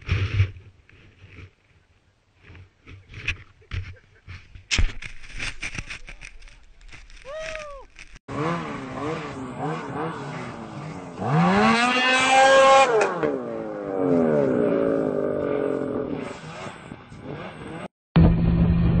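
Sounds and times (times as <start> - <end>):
snowmobile engine revving: 8.3 - 17.9.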